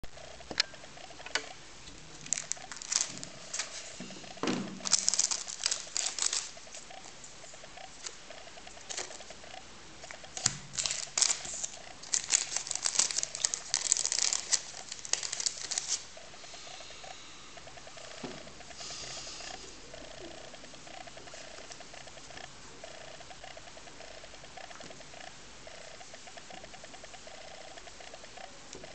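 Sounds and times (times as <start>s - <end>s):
plastic film crinkling: 2.1s - 4.0s, 4.8s - 6.9s, 7.9s - 9.3s, 10.1s - 16.1s.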